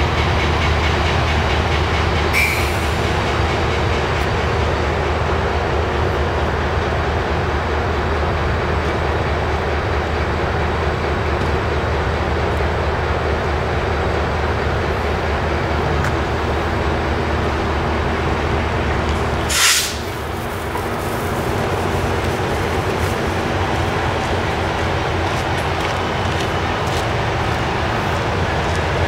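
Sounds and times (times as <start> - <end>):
diesel locomotive droning: 0.0 - 29.0
loud air hiss: 19.4 - 21.8.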